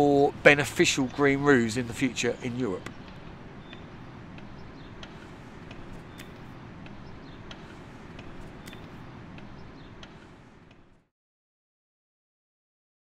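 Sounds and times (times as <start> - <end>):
low outdoor background noise: 0.0 - 11.1
sharp ticks: 0.8 - 11.0.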